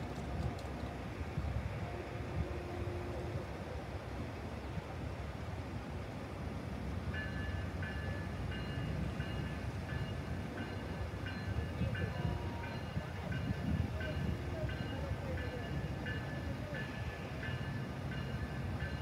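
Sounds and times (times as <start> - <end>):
railroad crossing bell ringing: 7.1 - 19.0.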